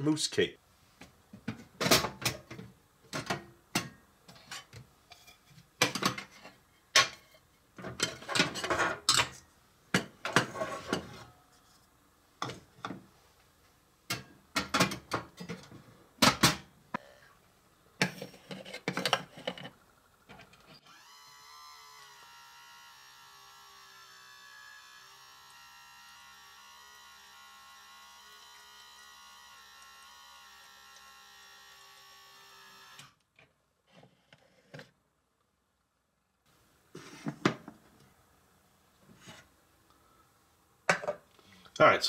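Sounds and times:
toy cabinet doors opening: 18.0s - 19.8s.

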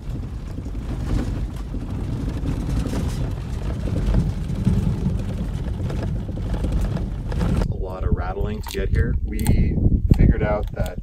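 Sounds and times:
dense rattle from corrugations: 0.0s - 9.7s
tyres rumbling on gravel: 0.0s - 11.0s.

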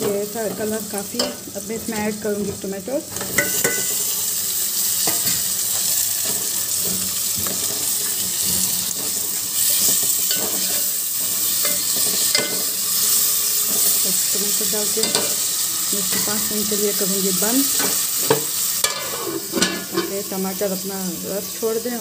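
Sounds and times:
vegetables sizzling in hot oil: 0.0s - 22.0s
metal spoon clinking and scraping pot: 3.1s - 4.1s, 5.0s - 14.0s, 14.8s - 16.4s, 17.6s - 20.2s.

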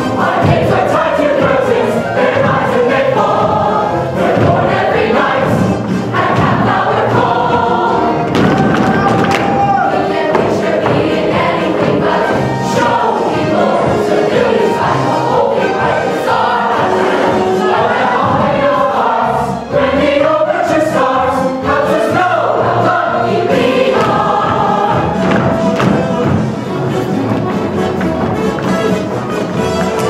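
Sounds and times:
chorus singing together: 0.0s - 27.1s.

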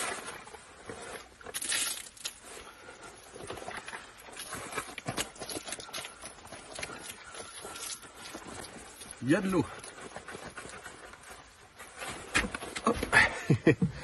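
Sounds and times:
wet wader boot rustling: 0.0s - 13.6s.

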